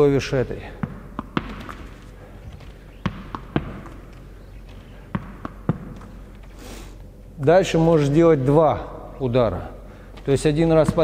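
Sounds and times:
tennis ball tapping wall and hand: 0.7 - 2.0, 3.0 - 4.3, 5.1 - 6.5, 10.8 - 11.0.

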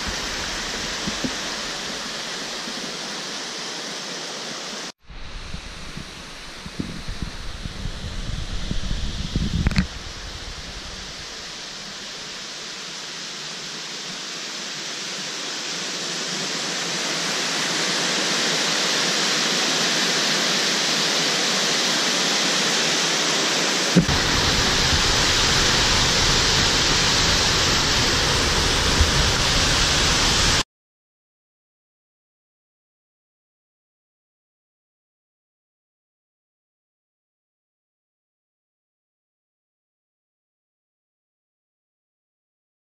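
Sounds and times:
steady rushing noise: 0.0 - 30.6.

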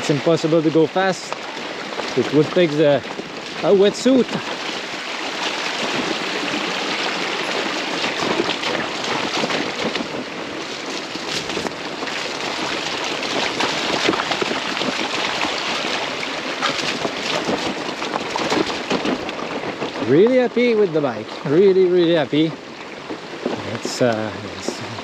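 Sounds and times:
stones and bike rattling: 0.0 - 25.0
tyres hissing on wet gravel: 23.6 - 25.0.

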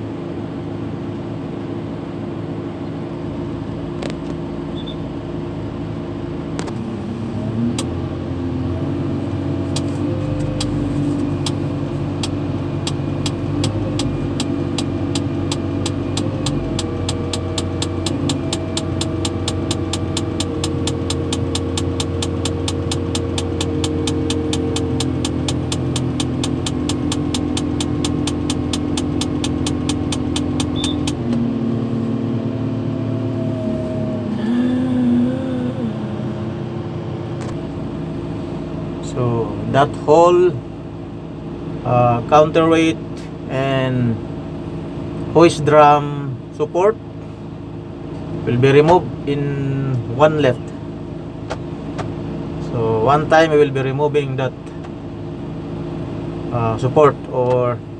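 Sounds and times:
diesel engine running: 0.0 - 57.9
quick regular clicking: 12.2 - 31.2.

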